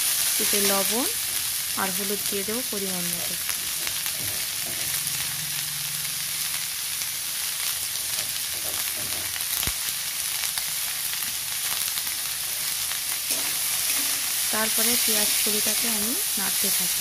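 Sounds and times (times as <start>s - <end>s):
onion stalks sizzling in oil: 0.0s - 17.0s
spatula scraping a pan: 3.5s - 5.0s, 8.0s - 9.4s.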